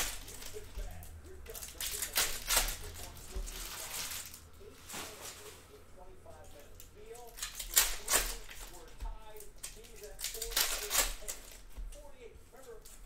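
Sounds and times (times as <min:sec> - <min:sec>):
cards shuffled: 0:00.0 - 0:05.1, 0:06.8 - 0:12.0
foil wrappers crinkling and tearing: 0:00.0 - 0:05.8, 0:06.4 - 0:12.0.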